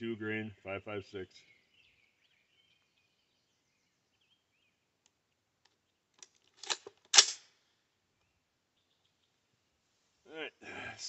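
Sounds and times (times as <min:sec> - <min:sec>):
rifle action clacking shut: 0:06.2 - 0:07.4.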